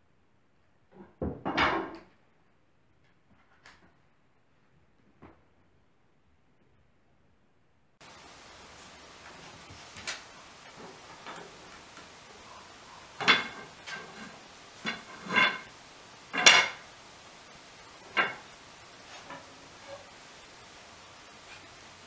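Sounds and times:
wooden spindles clacking: 0:08.0 - 0:22.0.

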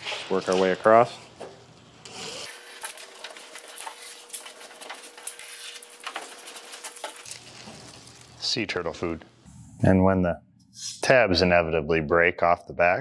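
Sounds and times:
tape backing peeling and crinkling: 0:02.0 - 0:08.4.

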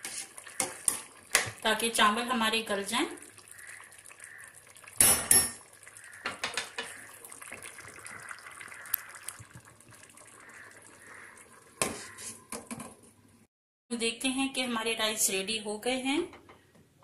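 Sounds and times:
spoon stirring rice in a pot: 0:00.0 - 0:01.6, 0:11.1 - 0:12.9.

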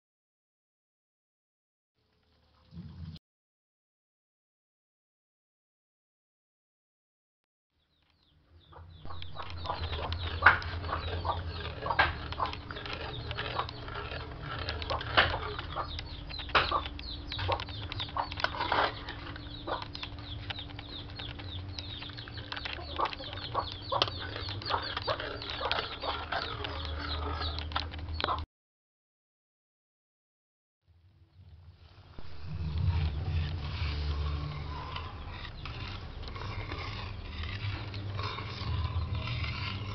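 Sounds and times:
steady low hum: 0:08.4 - 0:28.3, 0:31.0 - 0:39.9
metal spatula scraping wok: 0:09.2 - 0:16.6, 0:17.9 - 0:19.5, 0:32.2 - 0:39.9.

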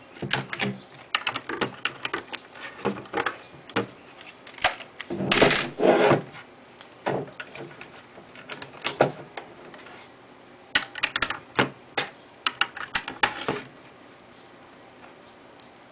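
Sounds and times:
plastic bricks clicking and rattling: 0:12.4 - 0:13.6.

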